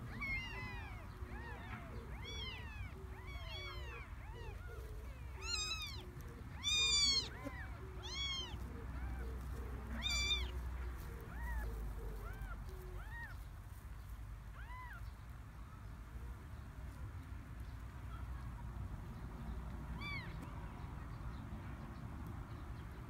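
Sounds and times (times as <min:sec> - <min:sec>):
kittens mewing: 0:00.0 - 0:10.6.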